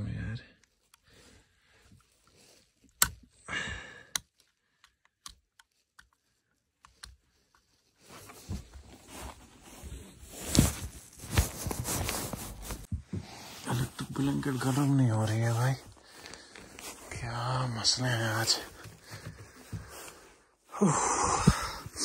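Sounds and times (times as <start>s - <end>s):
fabric rustling: 5.8s - 20.5s.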